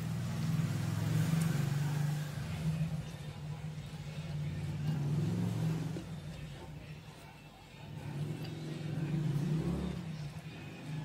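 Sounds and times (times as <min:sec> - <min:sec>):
low engine hum: 0:00.0 - 0:07.0.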